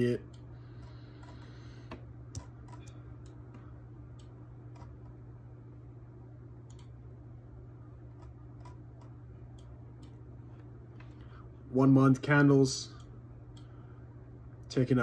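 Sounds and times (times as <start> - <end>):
low electrical hum: 0.0 - 15.0
computer mouse clicks: 4.2 - 5.2, 6.7 - 7.0, 8.2 - 10.2.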